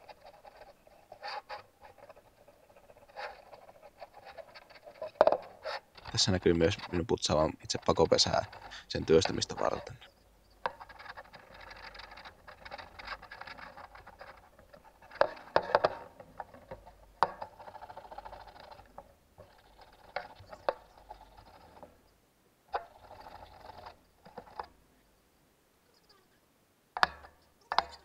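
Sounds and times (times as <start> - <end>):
abrasive scraping metal: 0.0 - 22.0.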